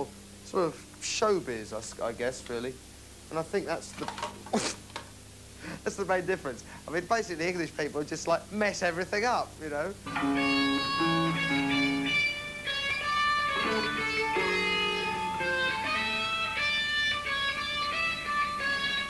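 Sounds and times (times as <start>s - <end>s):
electric guitar single notes: 10.0s - 19.0s.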